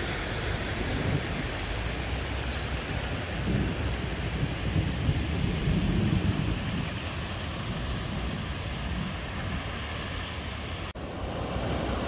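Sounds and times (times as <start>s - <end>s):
rain: 0.0s - 12.0s
wind noise on microphone: 0.0s - 12.0s
low thunder rumble: 3.3s - 9.6s.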